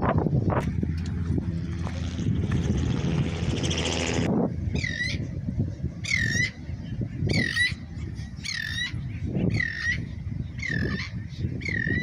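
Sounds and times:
low rumble: 0.0s - 6.0s.

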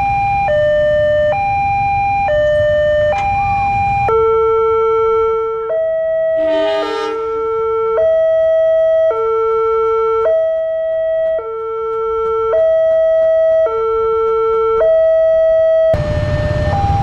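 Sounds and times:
horn-like blast: 6.3s - 7.8s.

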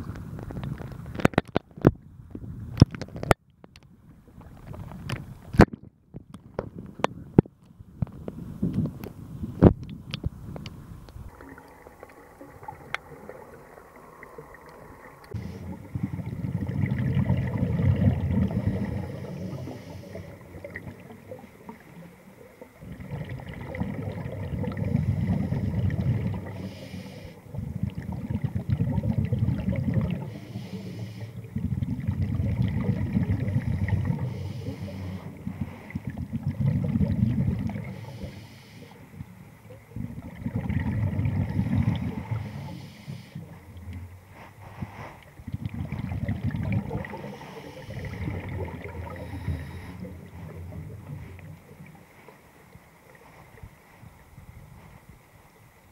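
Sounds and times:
underwater exhaled bubbles: 8.0s - 54.0s.

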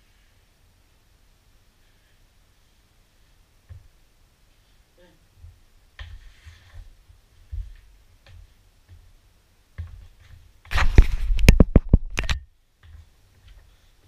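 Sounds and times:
sharp knocks on camera: 10.7s - 12.4s.

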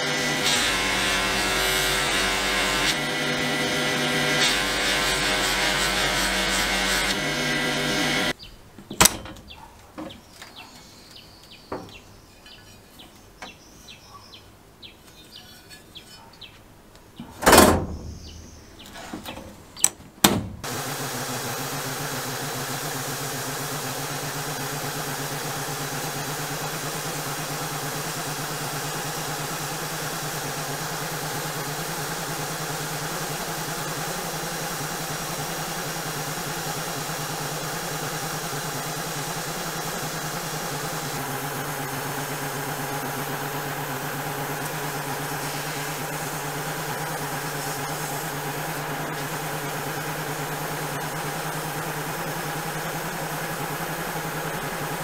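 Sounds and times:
buffing wheel running: 0.0s - 8.4s, 20.3s - 55.0s
sandblaster hissing and humming: 0.0s - 8.4s, 20.6s - 55.0s
cabinet latch and door clacks: 19.8s - 20.6s.

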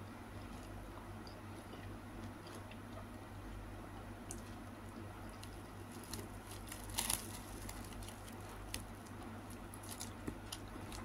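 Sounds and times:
plastic bag crinkling: 5.4s - 11.0s.

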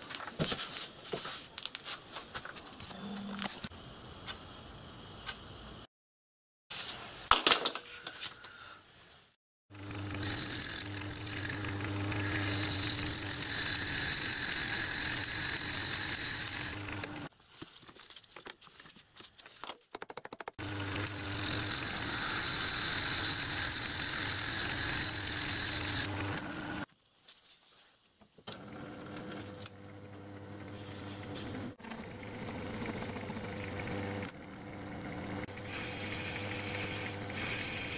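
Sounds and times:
metal lathe motor hum: 9.8s - 17.3s, 20.6s - 26.8s, 31.4s - 37.9s
hiss of lathe cutting metal: 35.6s - 37.9s.

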